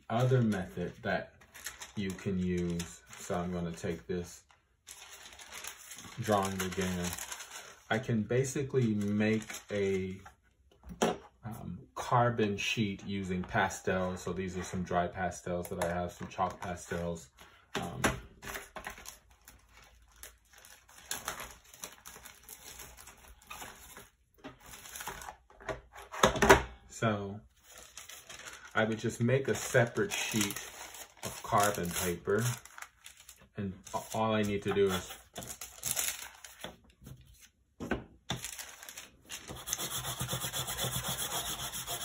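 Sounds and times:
paper rustling and handling: 0:00.0 - 0:10.4, 0:18.3 - 0:26.2, 0:27.5 - 0:37.6, 0:38.3 - 0:40.5
chalk rubbing on paper: 0:39.5 - 0:42.0.

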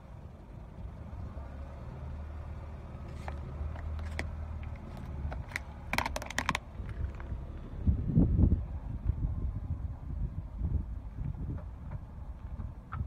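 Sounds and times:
car engine running low: 0:00.0 - 0:13.0
plastic cups cracking: 0:03.1 - 0:07.3.

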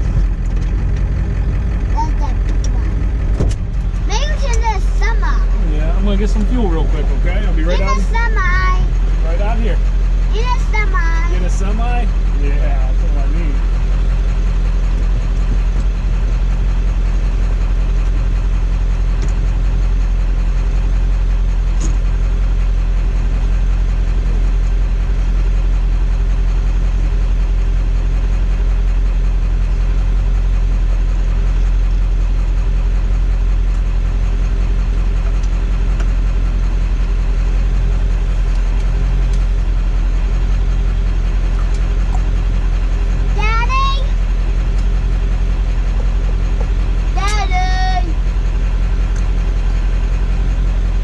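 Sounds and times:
pickup truck engine running: 0:00.0 - 0:51.0.

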